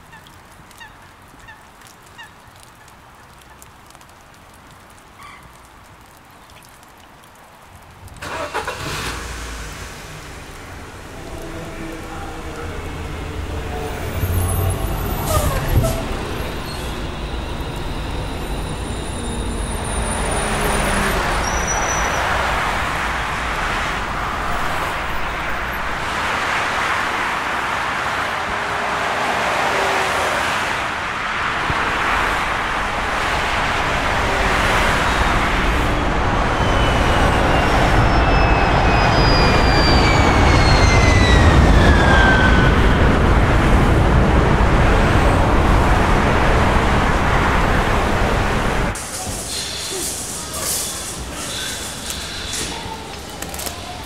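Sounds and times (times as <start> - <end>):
passing cars: 8.1 - 54.0.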